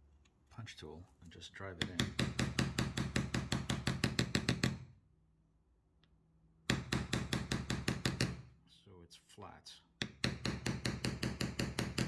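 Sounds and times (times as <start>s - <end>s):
mallet tapping a punch: 1.8s - 4.8s, 6.7s - 8.4s, 10.0s - 12.0s.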